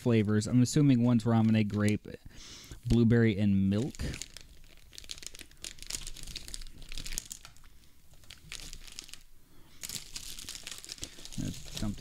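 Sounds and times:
plastic pouch crinkling and tearing: 3.7s - 12.0s.

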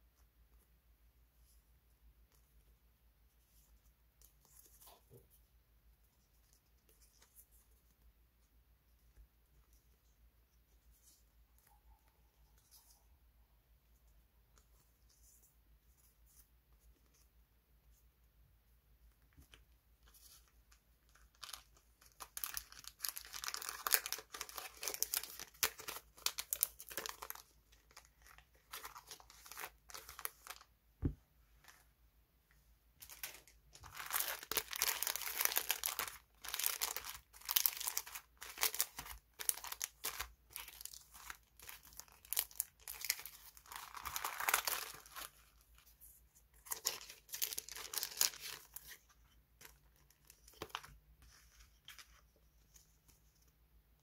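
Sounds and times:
plastic packaging crinkling: 21.1s - 30.7s, 33.0s - 45.8s, 46.6s - 49.0s.

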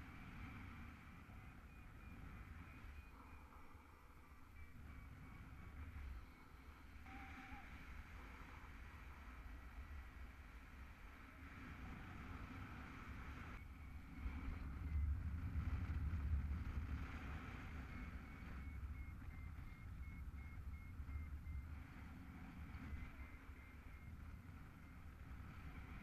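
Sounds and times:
wind buffeting microphone: 11.4s - 26.0s
rapid high-pitched beeping: 17.6s - 26.0s.

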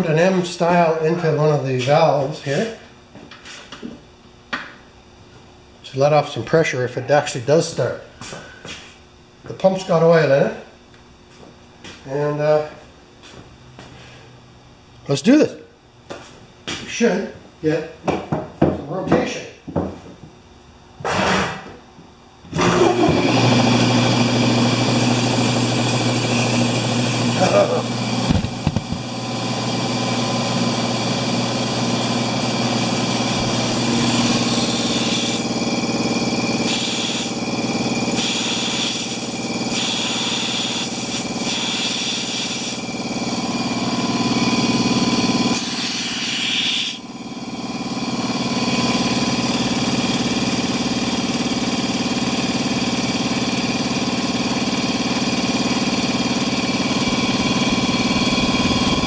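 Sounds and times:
air compressor running: 22.5s - 59.0s
air hissing: 31.6s - 35.5s, 36.6s - 37.4s, 38.2s - 42.9s, 45.5s - 47.0s.

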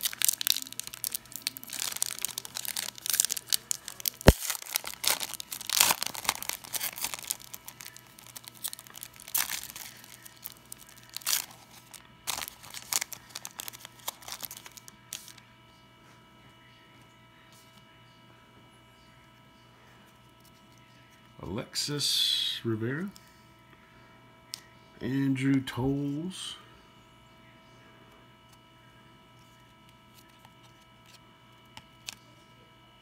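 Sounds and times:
foil wrapper tearing and crinkling: 0.0s - 15.4s.

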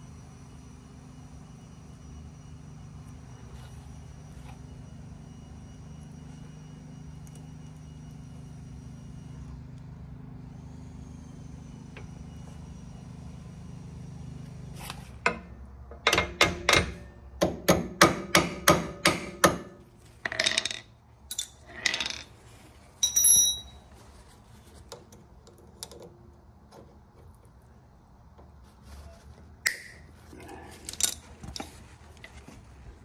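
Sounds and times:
hammer tapping on metal: 16.0s - 19.7s
metallic ring: 23.0s - 24.0s.

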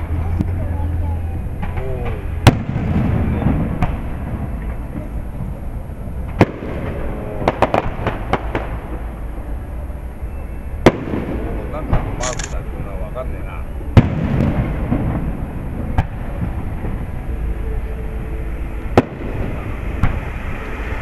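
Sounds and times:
low outdoor rumble: 0.0s - 21.0s
firework shells booming: 2.4s - 5.1s, 6.2s - 9.0s, 10.8s - 12.2s, 14.0s - 17.0s.

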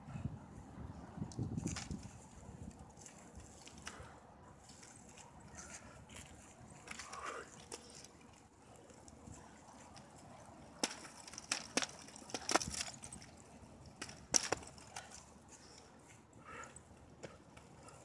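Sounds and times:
nunchaku clacking: 10.8s - 15.3s.

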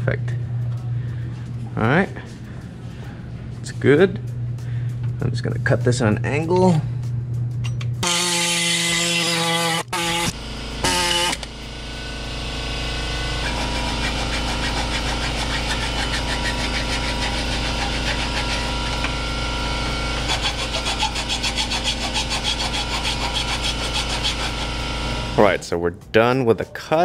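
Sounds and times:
air saw cutting sheet metal: 8.0s - 11.5s, 12.8s - 25.5s.

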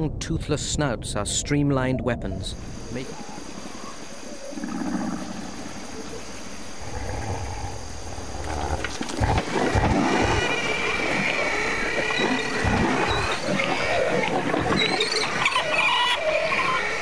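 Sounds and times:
creatures shrieking: 10.1s - 17.0s.

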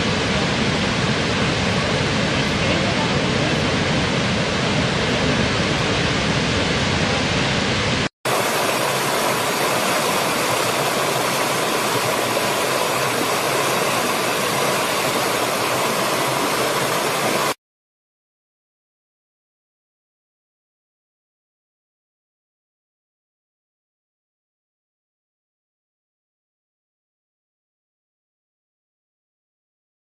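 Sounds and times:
waterfall rushing: 0.0s - 17.6s
stream running over rocks: 8.3s - 17.6s.

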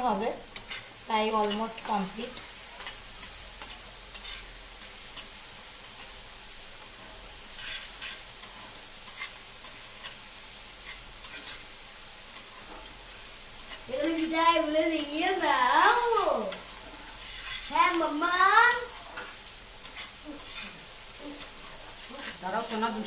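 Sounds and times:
food sizzling in a wok: 0.0s - 23.0s
metal spatula stirring and scraping: 0.5s - 6.2s, 6.8s - 11.7s, 12.3s - 14.3s, 15.9s - 23.0s
spatula clicking against pan: 1.4s - 1.6s.

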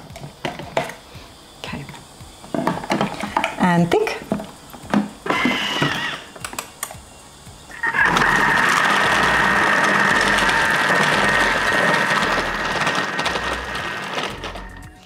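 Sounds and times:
food processor motor whine: 4.8s - 6.4s, 7.6s - 15.0s.

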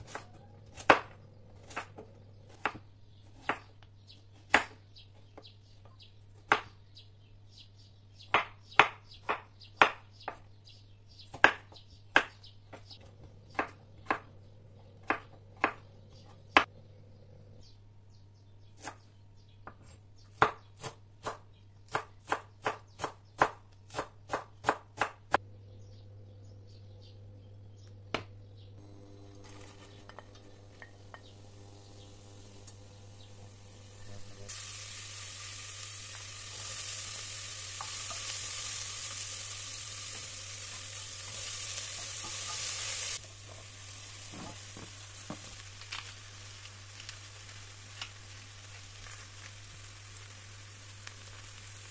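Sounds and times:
knife chopping on wooden board: 0.0s - 3.7s, 13.5s - 14.3s, 15.0s - 16.7s, 19.6s - 25.4s.

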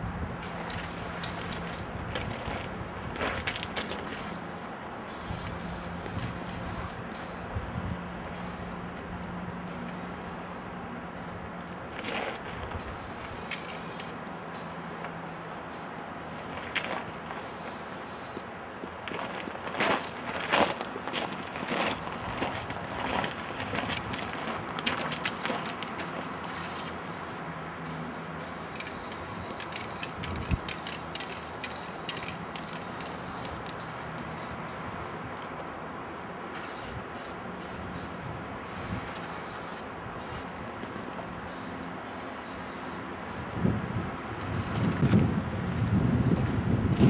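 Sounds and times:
spray paint can hissing: 0.4s - 1.9s, 4.0s - 7.5s, 8.3s - 8.8s, 9.7s - 11.4s, 12.8s - 15.9s, 17.4s - 18.5s, 26.4s - 35.3s, 36.5s - 40.5s, 41.4s - 43.5s.

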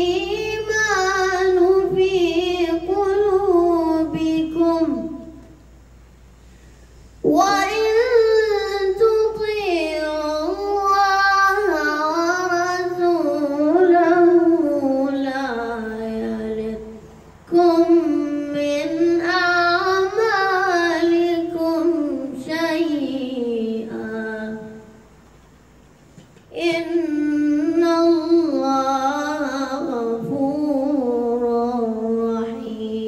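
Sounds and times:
boy chanting melodically: 0.0s - 5.8s, 7.1s - 25.1s, 26.4s - 33.0s.

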